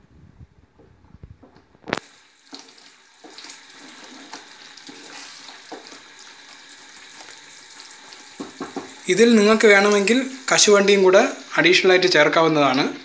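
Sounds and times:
thick preserve bubbling and sizzling: 1.8s - 11.8s
spoon stirring and scraping: 2.6s - 9.0s.

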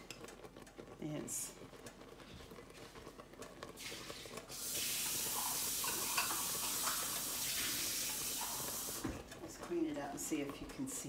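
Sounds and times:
syrup boiling in a pot: 0.0s - 11.0s
kitchen tap running: 3.7s - 11.0s.

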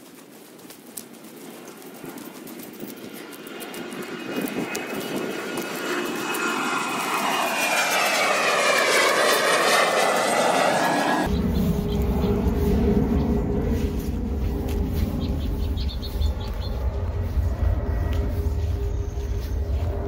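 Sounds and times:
jet airplane flying overhead: 0.0s - 20.0s
deep rumble: 8.0s - 20.0s.

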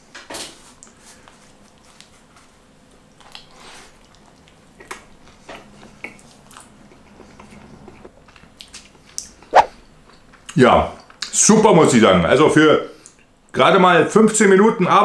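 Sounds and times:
chewing crunchy toasted sandwich: 1.4s - 9.4s.

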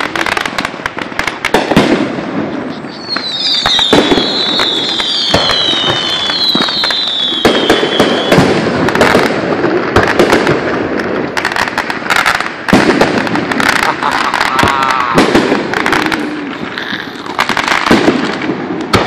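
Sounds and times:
firework bangs and crackling: 0.0s - 19.0s
firework whistles gliding down: 2.4s - 8.6s.

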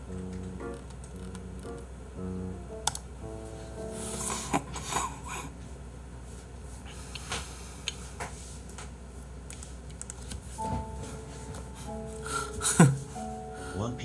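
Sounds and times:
low hum: 0.0s - 6.6s.

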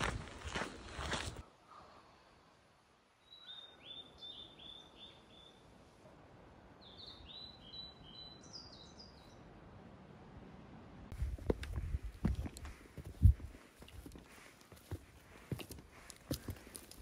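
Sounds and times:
soft outdoor hiss: 1.0s - 17.0s.

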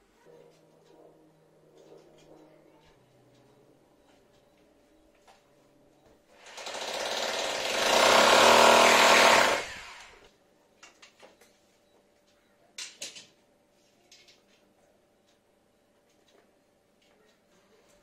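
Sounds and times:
electric drill boring into wall: 6.4s - 10.3s.

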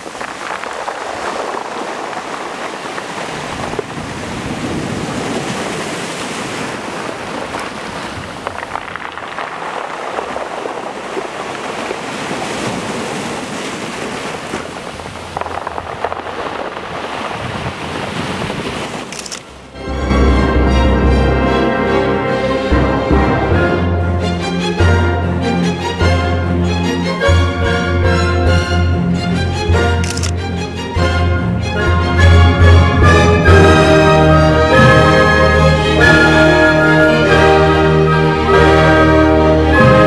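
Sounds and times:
waves washing over pebbles: 0.0s - 19.6s.

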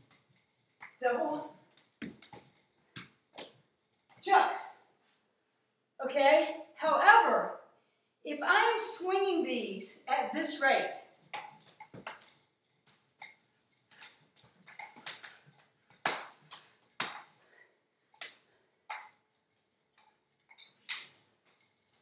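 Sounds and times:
nunchucks swishing and clacking: 0.0s - 4.4s, 11.0s - 17.4s, 18.1s - 22.0s.

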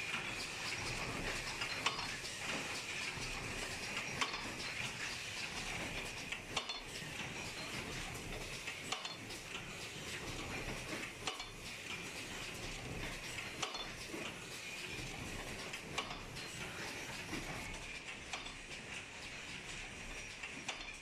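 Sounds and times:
machine clattering: 0.0s - 21.0s.

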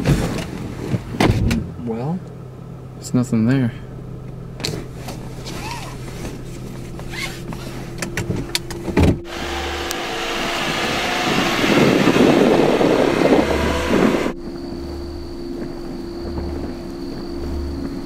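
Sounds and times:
car driving past: 9.2s - 14.4s.

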